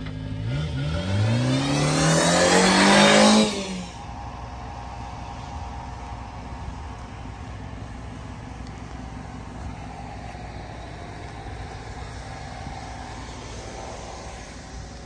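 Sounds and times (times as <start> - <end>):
truck engine idling: 3.2 - 15.0.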